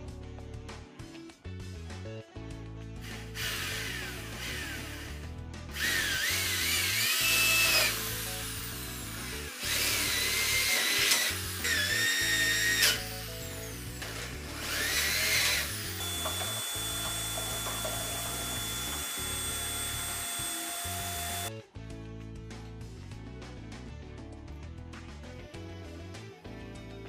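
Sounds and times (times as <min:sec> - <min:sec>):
background music: 0:00.0 - 0:27.0
electric drill boring into wood: 0:03.0 - 0:21.5.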